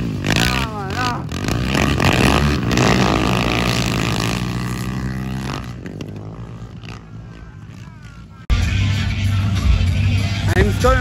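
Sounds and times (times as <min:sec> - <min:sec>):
quad bike engines revving: 0:00.0 - 0:11.0.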